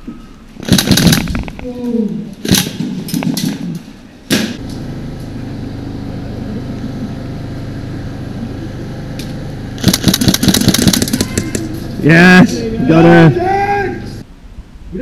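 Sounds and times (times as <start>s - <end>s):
airsoft gun rapid shots: 0.6s - 1.5s, 9.8s - 11.7s
low hum: 4.4s - 14.2s.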